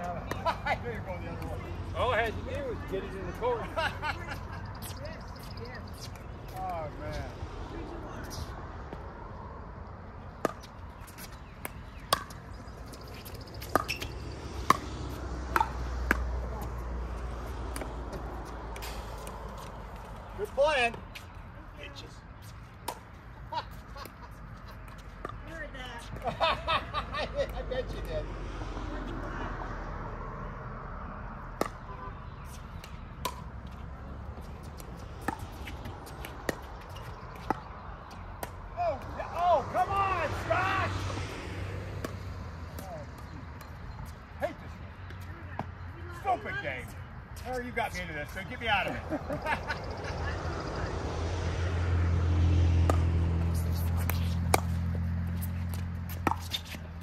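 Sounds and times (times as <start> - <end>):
ball bouncing on hard court: 10.4 - 16.7, 34.4 - 38.6, 52.8 - 56.8.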